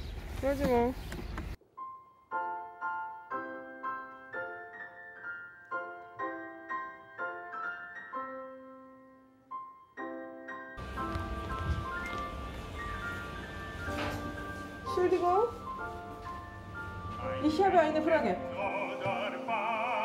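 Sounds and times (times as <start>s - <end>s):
piano melody: 1.6s - 20.0s
noisy background: 10.8s - 18.8s.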